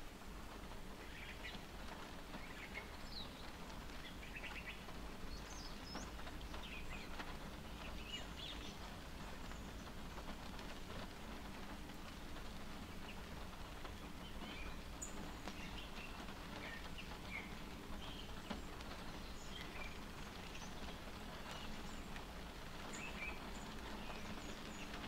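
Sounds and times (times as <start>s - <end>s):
rain pattering on car: 0.0s - 25.0s
birds chirping: 1.0s - 11.8s, 12.4s - 25.0s.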